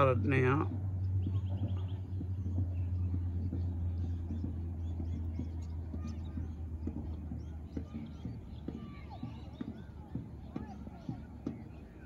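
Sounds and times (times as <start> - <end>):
bird trill: 0.9 - 11.9.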